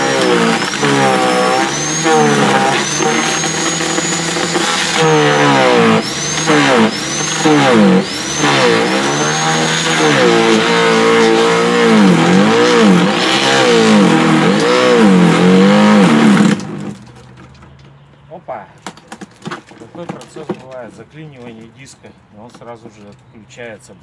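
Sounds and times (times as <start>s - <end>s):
electric garden shredder chewing branches: 0.0s - 17.3s.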